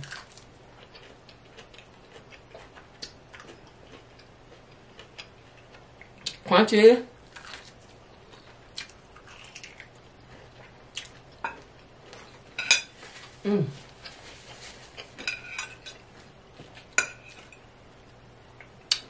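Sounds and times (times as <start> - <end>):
crunching fried chicken: 0.0 - 6.1, 7.2 - 11.3
person humming: 13.4 - 13.8.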